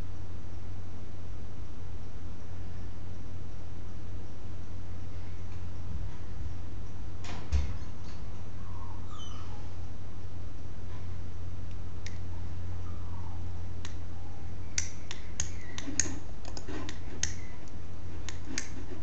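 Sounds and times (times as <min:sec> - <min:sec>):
steady low hum: 0:00.0 - 0:19.0
computer mouse clicking: 0:14.8 - 0:19.0.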